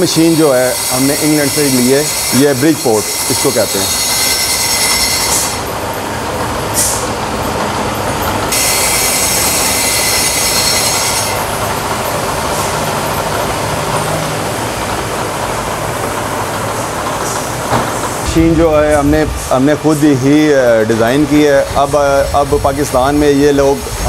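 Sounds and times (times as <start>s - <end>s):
shrill squeal of cutting tool: 0.0s - 5.7s, 8.5s - 11.5s
milling machine running: 0.0s - 24.0s
shop noise: 0.0s - 24.0s.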